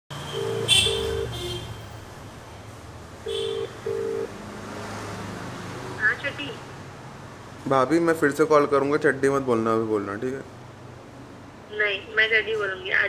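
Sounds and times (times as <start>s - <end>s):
phone ringback tone beeps: 0.4s - 1.3s, 3.9s - 4.3s.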